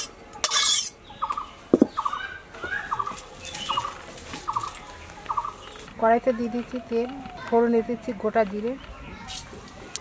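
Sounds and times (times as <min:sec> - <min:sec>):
metal spatula scraping a pan: 0:00.0 - 0:01.0.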